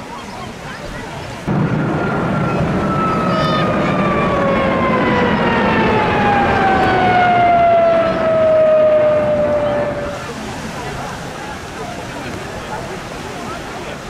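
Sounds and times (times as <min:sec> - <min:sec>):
jet flying past: 0:01.5 - 0:11.0.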